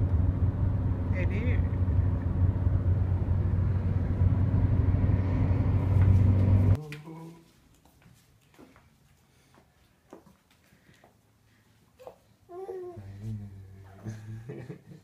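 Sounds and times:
car engine and road rumble: 0.0s - 6.8s.

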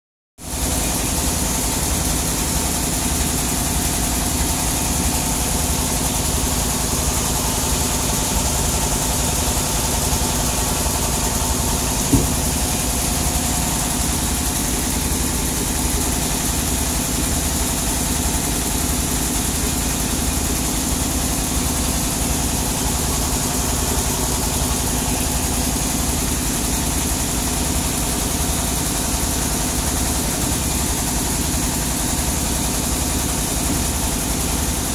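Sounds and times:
sawmill engine idling: 0.5s - 34.9s
sharp knock: 11.9s - 12.8s.

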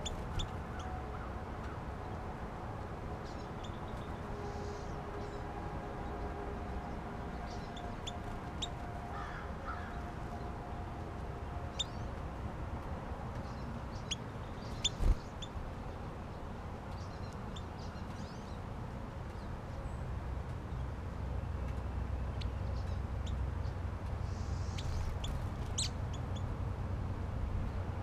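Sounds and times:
songbirds chirping: 0.0s - 28.0s
steady low rumble: 0.0s - 28.0s
crow cawing: 9.1s - 10.0s.

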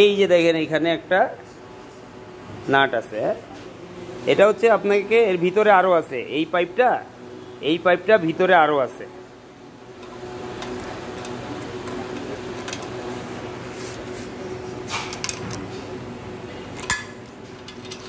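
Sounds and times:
room hum: 0.0s - 18.0s.

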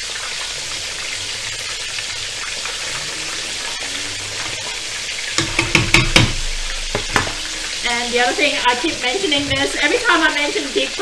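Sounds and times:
chicken deep-frying in oil: 0.0s - 11.0s
sharp knocks: 5.3s - 7.8s.

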